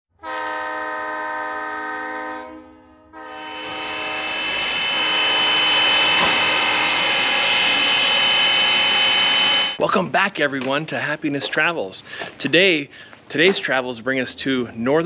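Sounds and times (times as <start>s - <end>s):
steam locomotive whistle: 0.2s - 9.8s.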